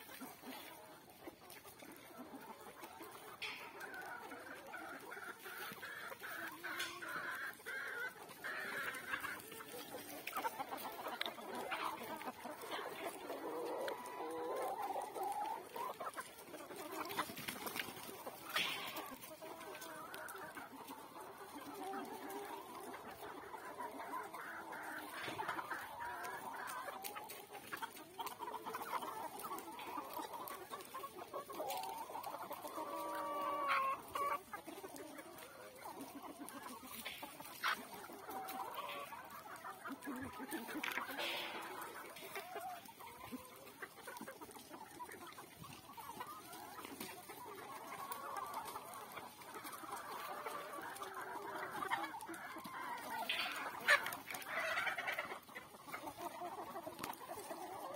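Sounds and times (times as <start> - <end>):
chickens clucking: 0.0 - 57.9
drawn-out chicken call: 0.0 - 57.9.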